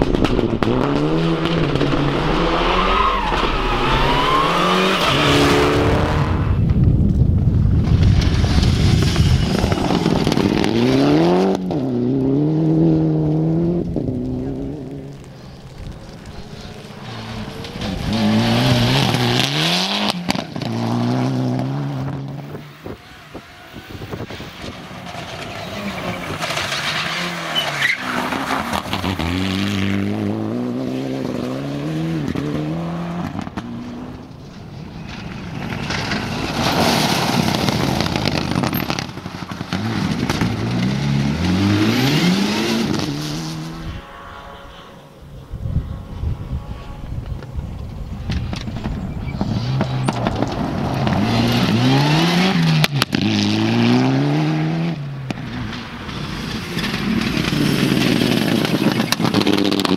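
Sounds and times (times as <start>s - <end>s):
rally car engines revving: 0.0s - 6.8s, 7.9s - 59.9s
tyres on gravel: 13.2s - 30.2s, 33.2s - 44.4s, 47.1s - 54.4s, 55.0s - 59.9s.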